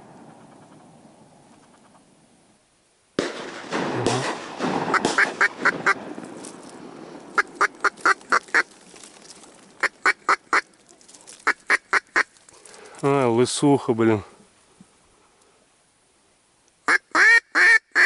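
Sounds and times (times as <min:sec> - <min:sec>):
rustling and handling noise: 0:06.2 - 0:13.1.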